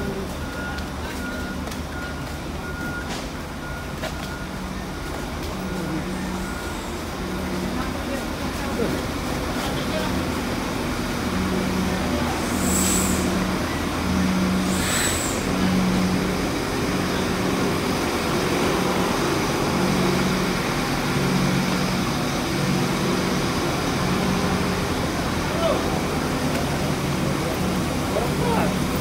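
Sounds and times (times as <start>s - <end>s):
buses idling: 0.0s - 29.0s
air brakes hissing: 12.3s - 13.8s, 14.4s - 15.8s.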